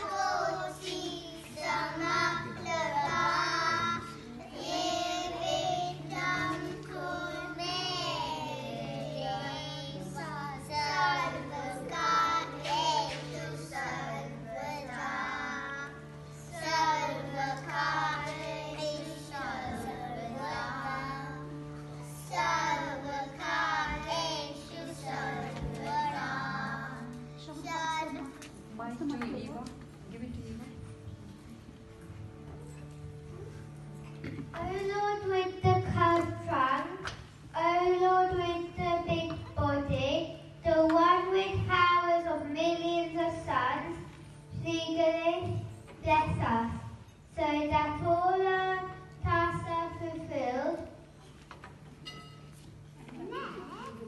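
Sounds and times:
steady held note: 0.0s - 17.5s
children singing into a microphone: 0.0s - 27.4s.

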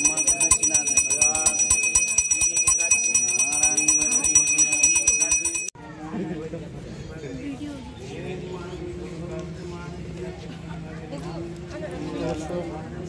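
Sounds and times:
voices: 0.0s - 5.7s
bell clanging rapidly: 0.0s - 5.8s.

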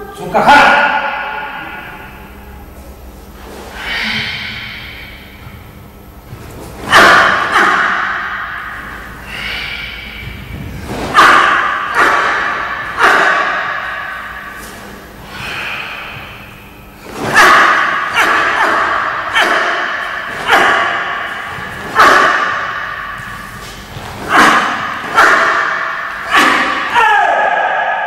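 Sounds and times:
uniform cracking on strikes: 10.8s - 14.9s, 17.0s - 27.0s.

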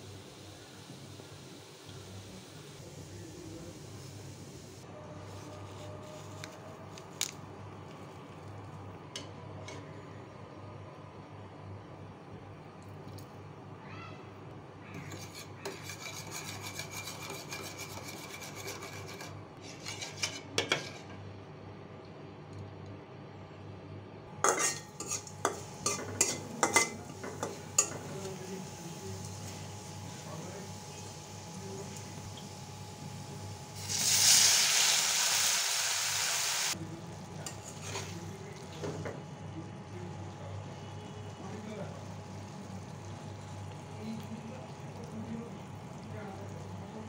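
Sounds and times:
garlic sizzling in hot oil: 0.0s - 6.5s, 24.4s - 39.2s
spoon scraping in metal bowl: 14.9s - 21.2s, 24.4s - 28.1s, 37.4s - 38.2s
spoon clinking against bowl: 24.4s - 28.0s.

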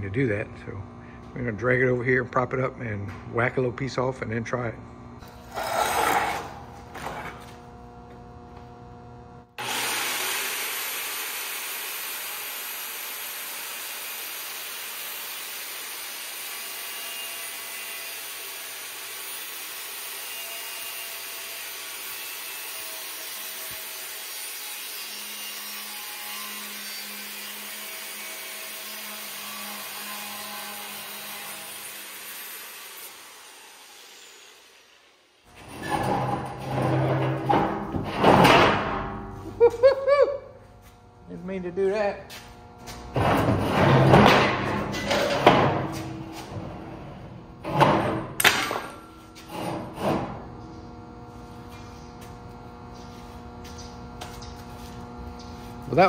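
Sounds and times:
angle grinder cutting steel: 9.6s - 37.8s.

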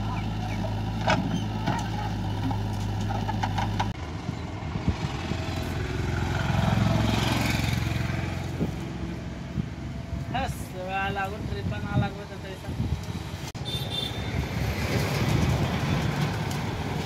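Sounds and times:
pulsing diesel engine: 0.0s - 10.1s
diesel engines running: 0.0s - 17.0s.

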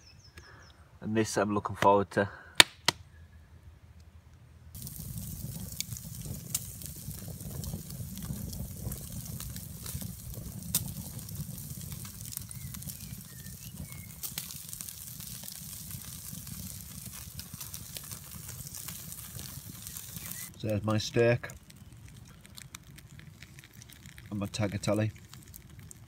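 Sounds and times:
campfire crackling and popping: 4.7s - 26.0s
steaks sizzling on grill: 4.8s - 20.5s
steady low rumble: 4.8s - 25.1s.

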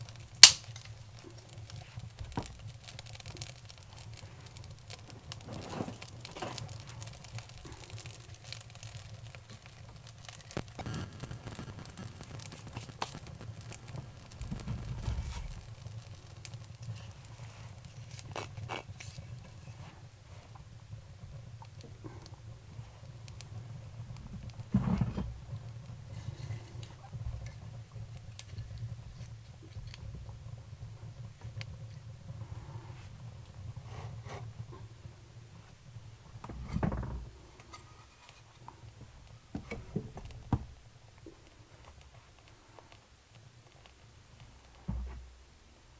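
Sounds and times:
sharp snaps: 0.0s - 0.9s
fire crackling and popping: 0.0s - 45.9s
wooden knocks: 44.9s - 45.3s.

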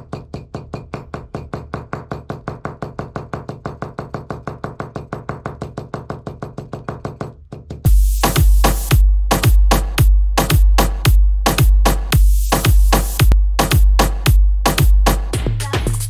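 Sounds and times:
small hammer tapping: 0.0s - 7.9s
electronic dance music: 7.9s - 16.0s.

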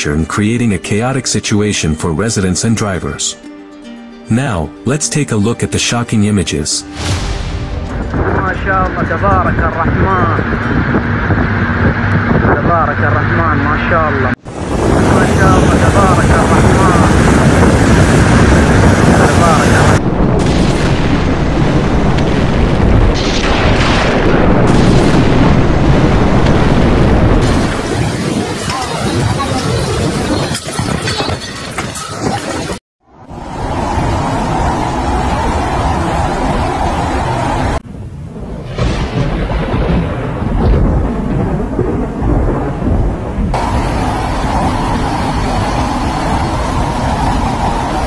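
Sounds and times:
sharp thunder crack: 6.9s - 11.1s, 14.4s - 30.3s, 33.8s - 48.0s
thunder rumbling: 7.0s - 48.0s
strong wind buffeting microphone: 7.2s - 48.0s
traffic: 9.7s - 14.4s, 32.2s - 37.8s, 43.6s - 48.0s
rain hissing: 14.4s - 30.4s, 33.3s - 48.0s.

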